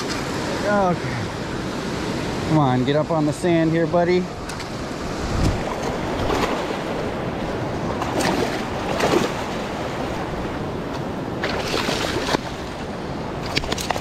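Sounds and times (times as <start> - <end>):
surf waves washing on sand: 0.0 - 14.0
fish thrashing in water: 11.4 - 12.8.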